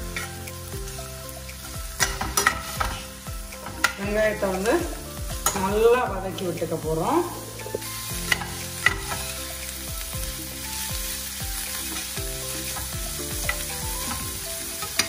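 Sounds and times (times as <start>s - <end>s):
onions sizzling in hot oil: 0.0s - 15.0s
metal spoon clicking on pan: 2.0s - 3.0s, 3.6s - 4.0s, 5.4s - 5.7s.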